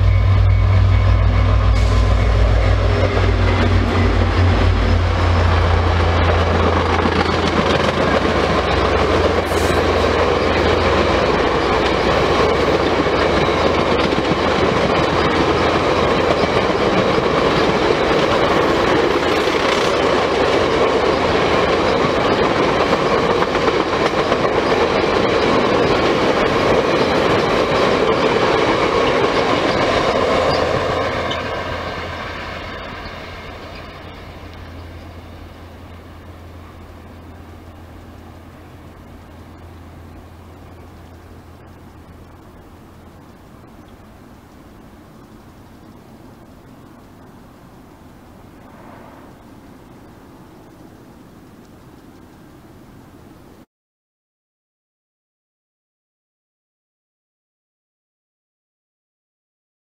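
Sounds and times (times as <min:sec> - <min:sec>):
train wheels clattering on rails: 0:00.0 - 0:42.6
diesel locomotive rumble: 0:00.0 - 0:52.2.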